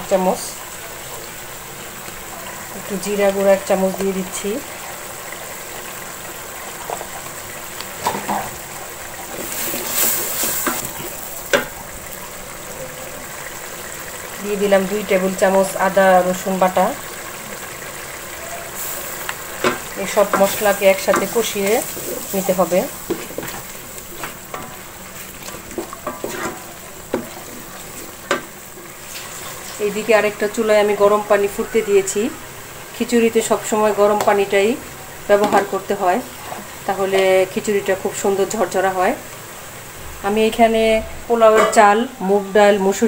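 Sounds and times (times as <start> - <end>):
spices sizzling in oil: 0.0 - 43.0
wooden spatula scraping pot: 18.8 - 29.7.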